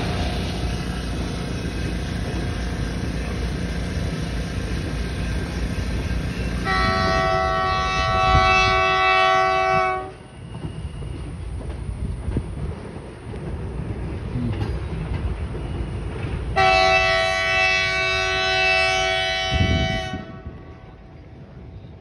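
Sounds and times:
freight train rumbling on track: 0.0 - 22.0
locomotive horn blast: 6.6 - 10.2, 16.6 - 21.0.

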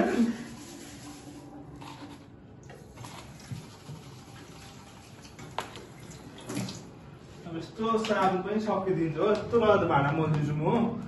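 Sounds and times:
tap water running: 2.0 - 6.9.

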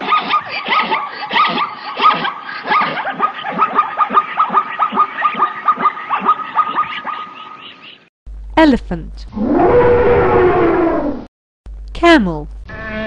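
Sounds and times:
zebra barking: 0.0 - 8.0.

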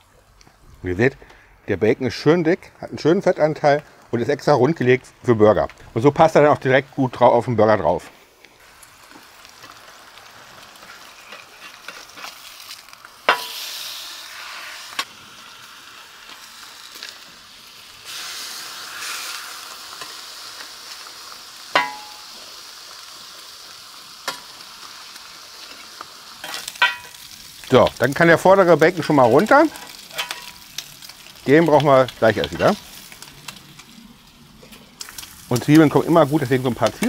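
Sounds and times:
bacon sizzling: 8.2 - 37.0.

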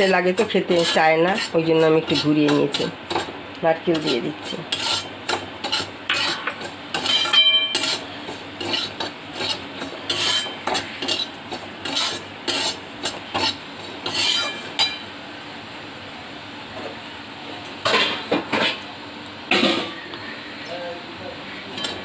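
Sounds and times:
spatula scraping a pan: 0.0 - 15.0, 21.5 - 22.0
metal clinks against pan: 7.0 - 7.8.

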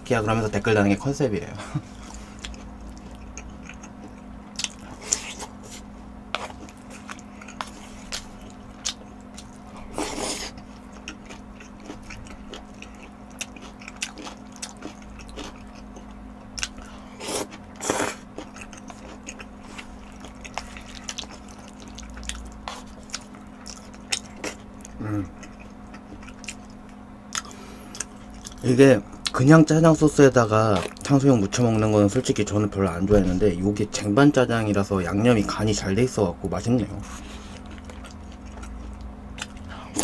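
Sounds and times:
wet chewing with mouth clicks: 2.0 - 29.4, 30.6 - 31.6, 37.1 - 40.0.

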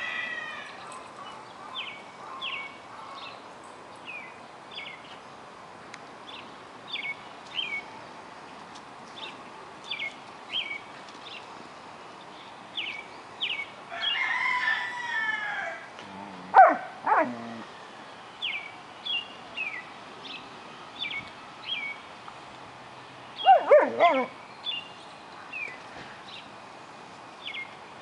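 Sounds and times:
dog whining: 16.5 - 17.7, 23.4 - 24.3.

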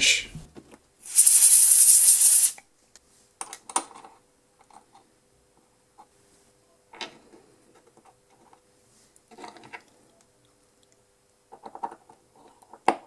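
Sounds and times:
compressed air hiss: 1.0 - 2.6.

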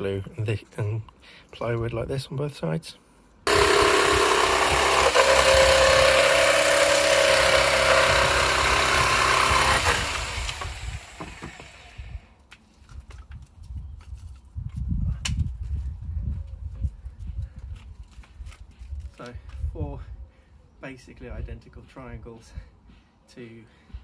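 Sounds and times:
electric jigsaw cutting plywood: 3.5 - 12.2.

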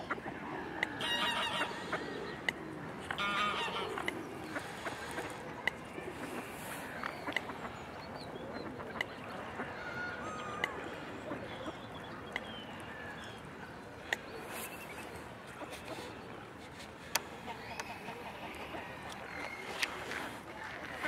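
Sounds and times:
waterfowl honking and quacking: 0.0 - 2.2, 3.0 - 5.5.

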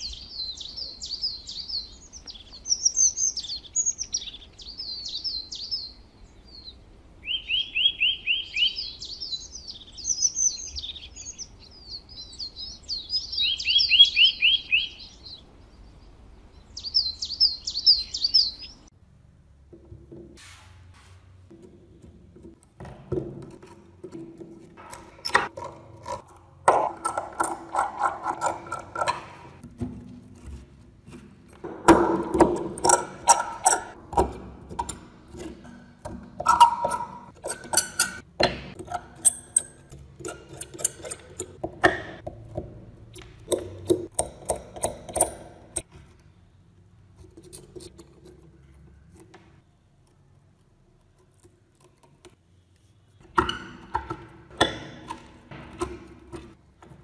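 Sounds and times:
hand pick scraping rust off metal: 23.1 - 29.6, 30.4 - 42.3, 43.1 - 45.9.

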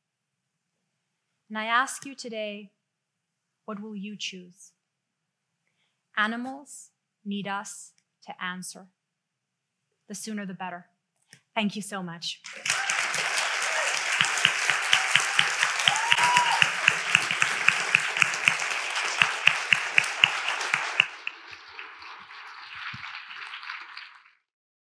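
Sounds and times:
rhythmic hand clapping: 12.4 - 24.4
audience applauding: 12.4 - 24.5.

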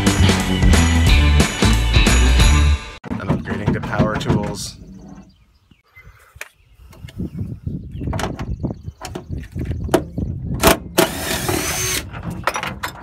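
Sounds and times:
hand tools clattering on metal: 3.0 - 4.8.

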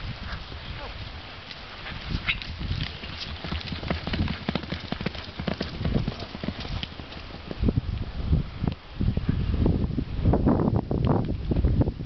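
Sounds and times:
horse hoofbeats on dirt: 1.5 - 7.8.

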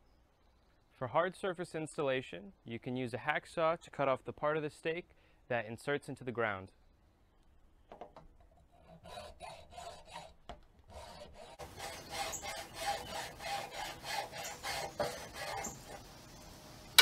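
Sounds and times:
hacksaw cutting plastic: 10.9 - 16.0.

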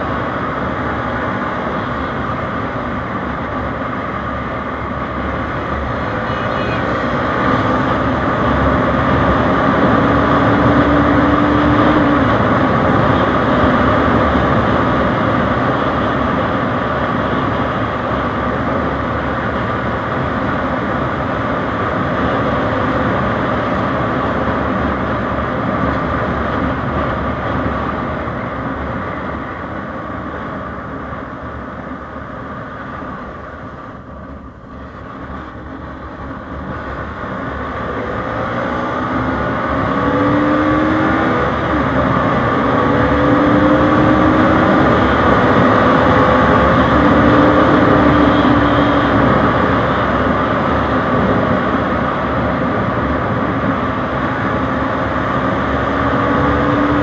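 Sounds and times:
motorcycle engine cruising: 5.5 - 16.8, 36.7 - 57.0.

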